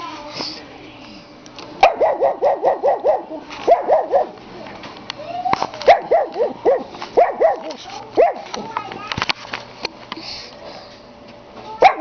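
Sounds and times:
puppy barking: 1.8 - 4.4, 5.9 - 8.5, 11.8 - 12.0.

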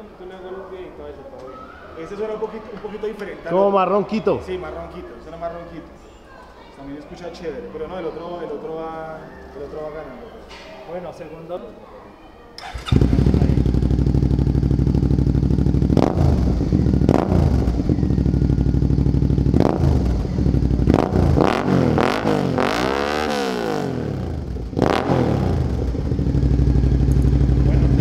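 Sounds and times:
motorcycle engine idling and revving: 12.6 - 28.0.

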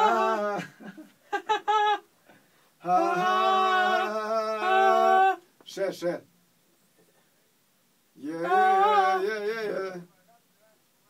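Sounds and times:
man singing unaccompanied: 2.8 - 5.4, 8.2 - 10.5.

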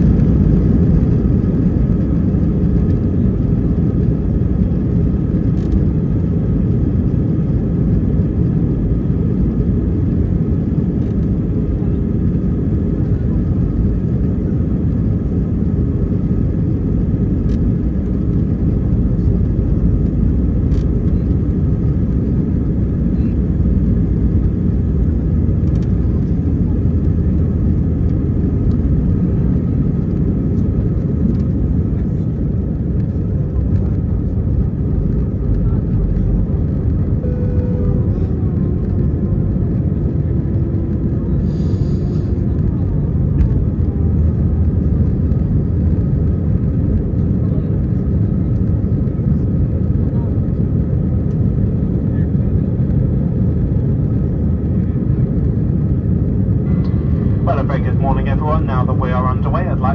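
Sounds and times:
airliner cabin engine rumble: 0.0 - 59.9
faint steady whine: 35.0 - 40.7, 55.0 - 59.9.

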